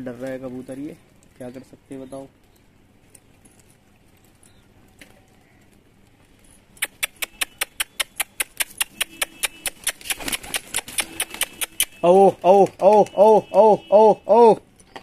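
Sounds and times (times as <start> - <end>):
fast sharp clicks: 6.8 - 13.4.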